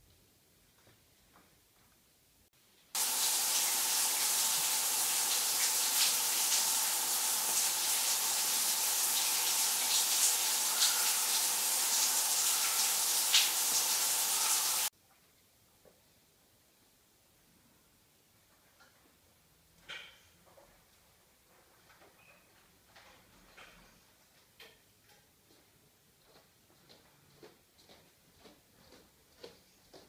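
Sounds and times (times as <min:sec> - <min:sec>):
running water rushing: 0:03.0 - 0:14.9.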